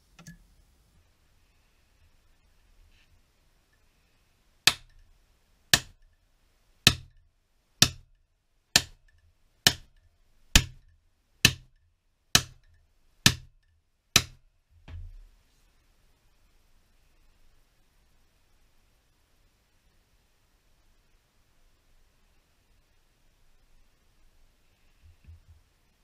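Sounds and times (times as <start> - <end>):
hammer striking metal with ring: 12.4 - 12.7.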